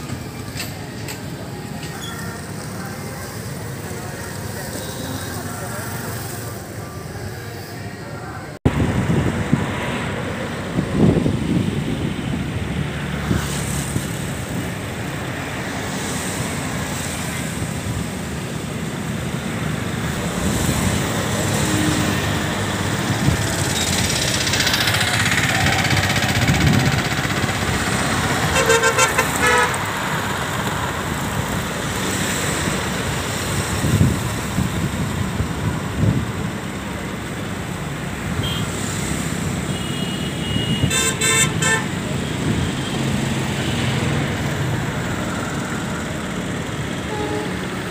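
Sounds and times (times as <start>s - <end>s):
motorcycles and scooters passing: 19.4s - 35.4s
vehicle horns beeping: 28.5s - 29.9s, 38.4s - 38.8s, 39.6s - 42.1s, 47.1s - 47.7s.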